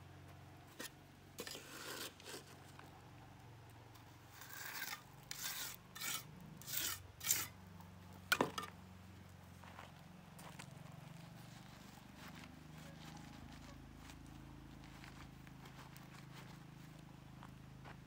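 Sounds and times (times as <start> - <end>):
uneven scraping strokes: 0.7 - 2.8, 4.2 - 7.6.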